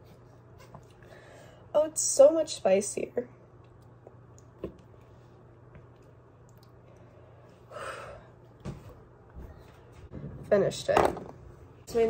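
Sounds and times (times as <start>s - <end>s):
breathy exhale: 7.6s - 8.3s.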